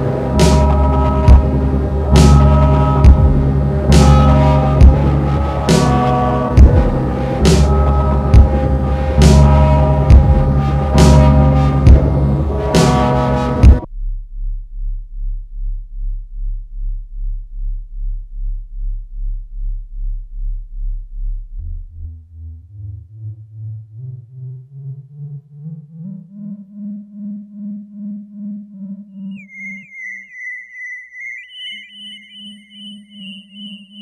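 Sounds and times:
electronic synthesizer music: 0:00.0 - 0:13.9, 0:23.9 - 0:34.0
low throbbing synth tone: 0:00.0 - 0:34.0
high chirping synth tones: 0:29.1 - 0:34.0.

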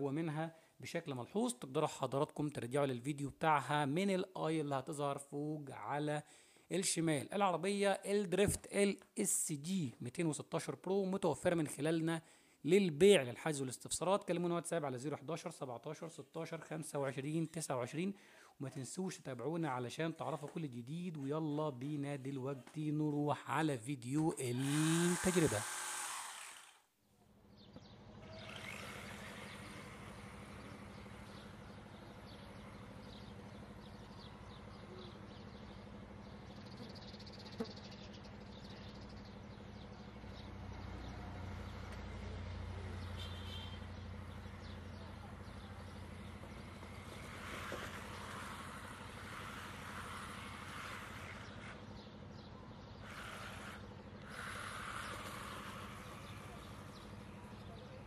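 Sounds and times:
outdoor background noise: 0:00.0 - 0:58.0
rc car motor: 0:24.5 - 0:26.9, 0:27.8 - 0:32.2, 0:45.3 - 0:52.0, 0:53.0 - 0:57.8.

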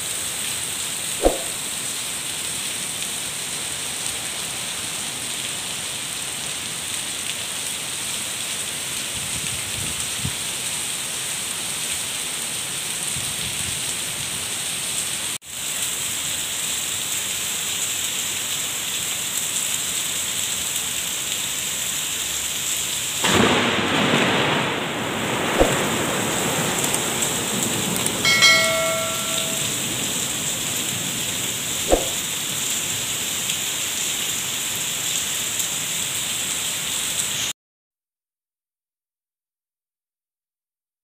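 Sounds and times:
heavy rain: 0:00.0 - 0:37.5
short beep: 0:28.3 - 0:29.7.

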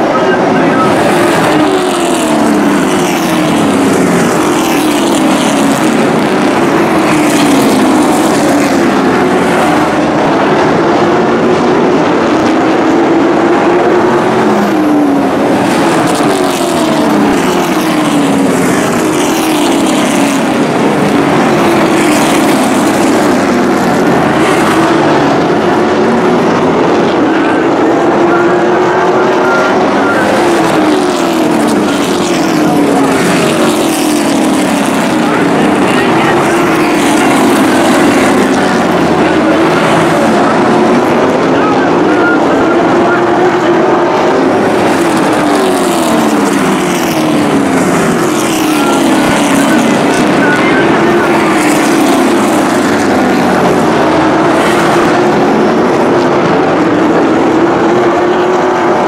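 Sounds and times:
race truck engines passing by: 0:00.0 - 0:59.0.

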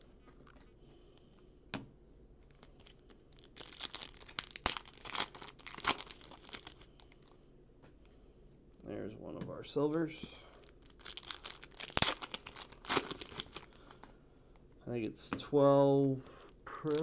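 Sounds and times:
foil wrapper crinkling and tearing: 0:02.5 - 0:07.4, 0:10.5 - 0:14.1, 0:16.7 - 0:17.0
cards rustling: 0:10.6 - 0:14.1, 0:16.1 - 0:17.0.

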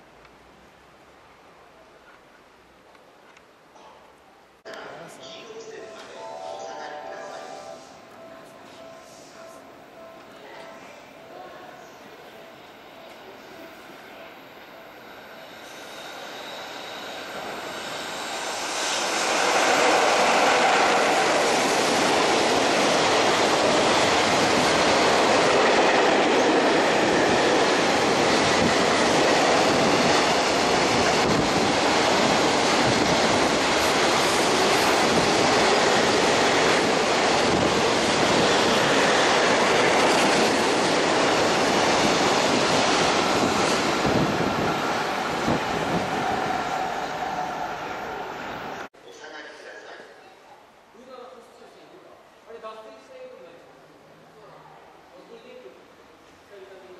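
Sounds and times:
freight train passing: 0:04.7 - 0:48.9.

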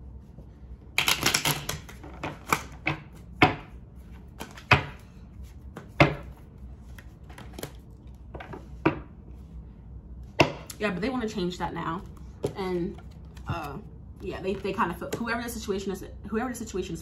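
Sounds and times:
cards being shuffled: 0:01.0 - 0:03.0, 0:04.0 - 0:08.4, 0:12.0 - 0:13.8.

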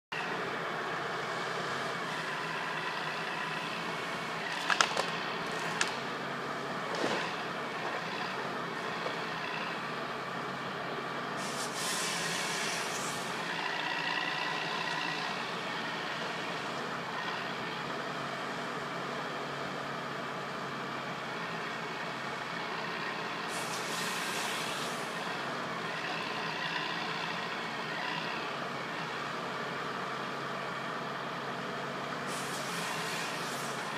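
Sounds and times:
diesel engine running: 0:00.1 - 0:33.9
brief hiss: 0:11.4 - 0:13.2.

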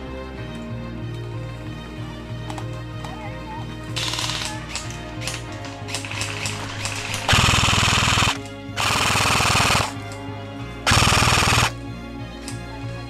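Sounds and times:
background music held tones: 0:00.0 - 0:13.0
airsoft gun full-auto bursts: 0:04.0 - 0:10.0, 0:10.9 - 0:11.8.

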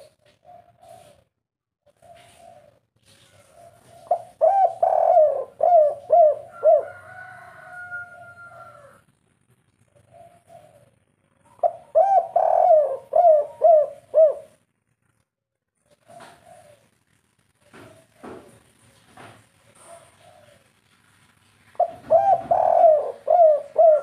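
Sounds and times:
dove cooing: 0:00.0 - 0:01.3, 0:01.9 - 0:09.0, 0:09.9 - 0:14.6, 0:15.8 - 0:17.0, 0:17.6 - 0:20.8, 0:21.8 - 0:24.0.

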